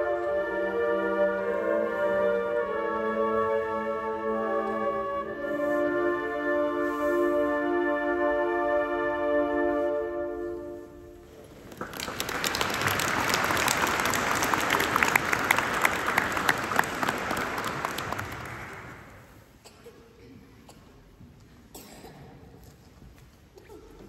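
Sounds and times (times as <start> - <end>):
flute ensemble holding chord: 0.0 - 11.2
audience applauding: 11.4 - 19.3.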